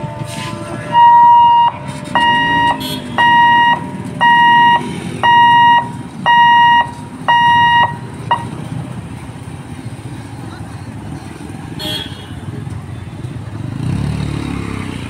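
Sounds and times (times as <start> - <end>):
electric warning hooter beeping: 0.0 - 8.6.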